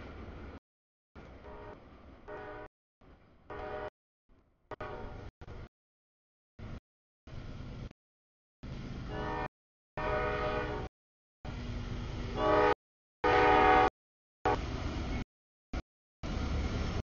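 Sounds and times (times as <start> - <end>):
locomotive air horn: 1.4 - 2.7, 3.5 - 3.9, 4.7 - 5.2, 9.1 - 10.9, 12.3 - 14.6.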